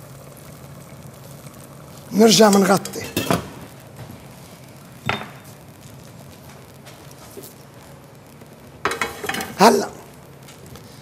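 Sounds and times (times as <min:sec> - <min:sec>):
metal pot lid clinking: 0:02.8 - 0:03.5, 0:08.9 - 0:09.6.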